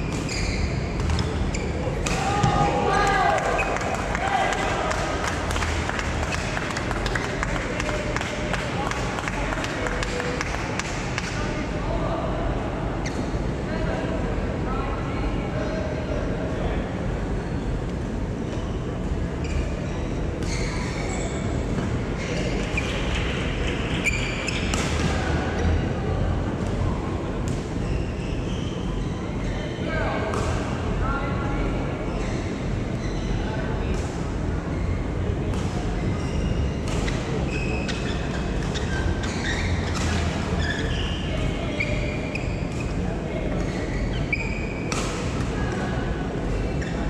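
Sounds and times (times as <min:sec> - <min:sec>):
shoes squeaking on court: 0:00.0 - 0:02.1, 0:18.5 - 0:21.5, 0:36.0 - 0:43.0.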